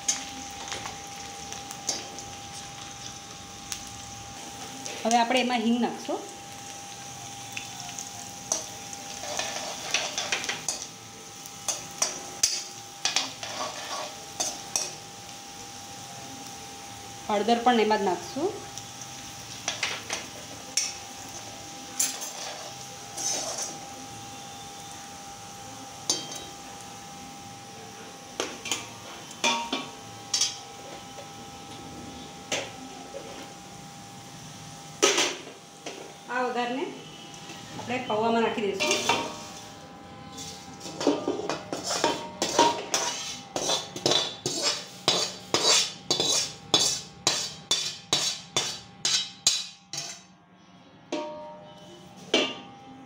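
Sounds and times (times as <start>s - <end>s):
spices sizzling in hot oil: 0.0s - 50.2s
steel spoon scraping a pan: 8.5s - 10.9s, 11.6s - 15.0s, 20.8s - 23.9s, 38.7s - 50.3s.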